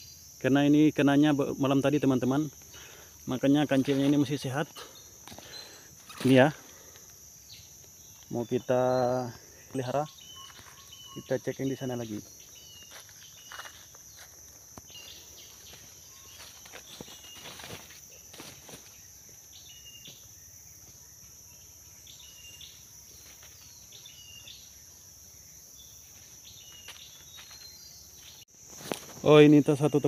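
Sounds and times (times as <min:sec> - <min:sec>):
insects droning: 0:00.0 - 0:30.0
footsteps in dry leaves: 0:12.4 - 0:19.0, 0:26.2 - 0:29.3.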